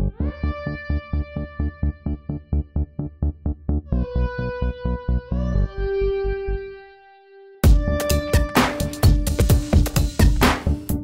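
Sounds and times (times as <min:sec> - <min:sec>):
electronic music with fast beat: 0:07.6 - 0:11.0.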